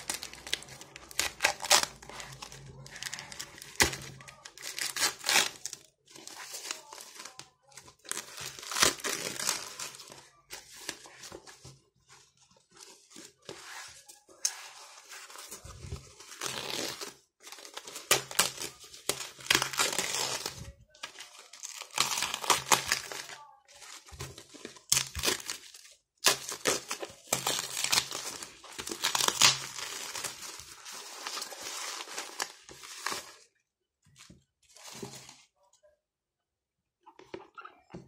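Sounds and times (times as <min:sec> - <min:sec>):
plastic packaging crinkling: 0:00.0 - 0:11.8, 0:15.3 - 0:33.4.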